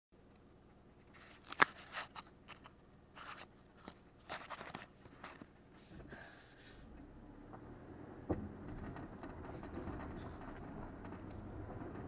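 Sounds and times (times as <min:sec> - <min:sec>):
car crunching over rocks: 0:08.3 - 0:12.0.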